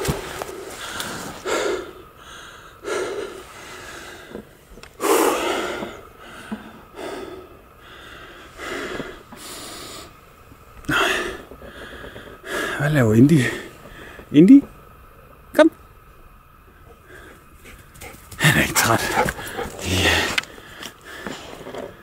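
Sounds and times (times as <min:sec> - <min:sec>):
man panting heavily: 0:00.7 - 0:04.4, 0:05.0 - 0:10.2, 0:10.9 - 0:12.8, 0:17.0 - 0:21.7.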